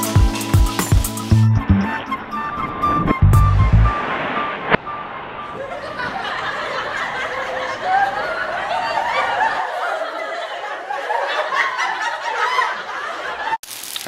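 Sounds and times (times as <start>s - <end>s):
people laughing and chuckling: 5.5s - 13.6s.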